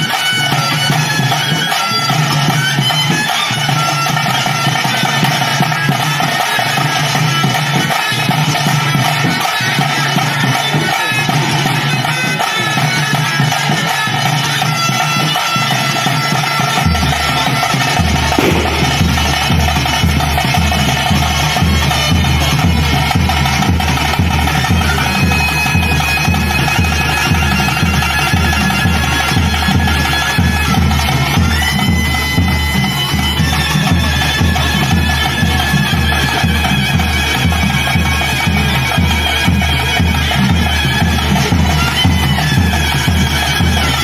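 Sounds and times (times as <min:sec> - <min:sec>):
reed wind instrument long notes: 0:06.2 - 0:44.0
low drum beat: 0:17.3 - 0:24.9.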